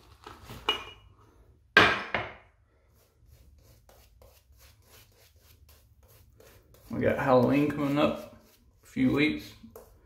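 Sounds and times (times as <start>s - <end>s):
shaving brush strokes: 2.8s - 10.0s.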